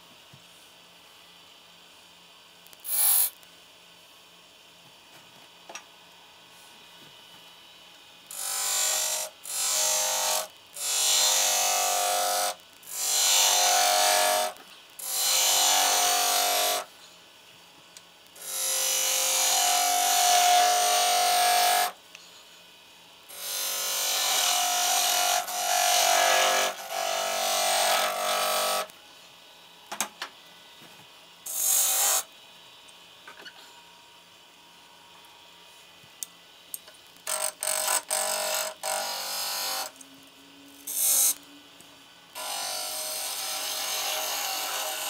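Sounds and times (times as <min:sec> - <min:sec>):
turning tool cutting wood: 0:08.3 - 0:16.9, 0:18.4 - 0:22.0, 0:23.3 - 0:28.9, 0:37.2 - 0:39.9, 0:42.4 - 0:45.0.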